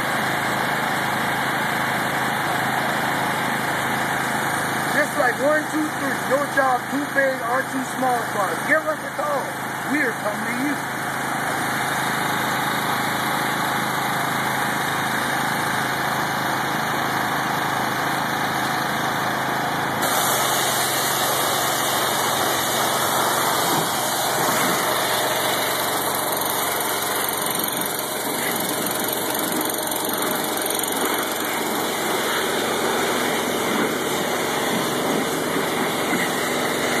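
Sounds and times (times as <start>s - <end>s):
pressure washer motor droning: 0.0s - 37.0s
water jet hissing on car: 20.0s - 25.0s.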